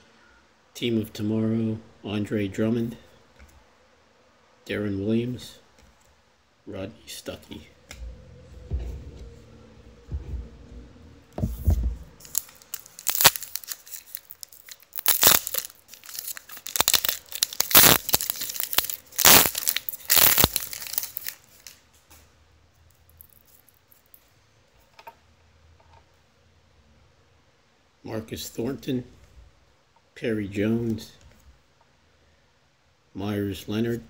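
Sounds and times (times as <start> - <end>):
handling of cards: 11.4 - 22.3
wrapper tearing and crinkling: 12.2 - 21.8, 23.2 - 24.2.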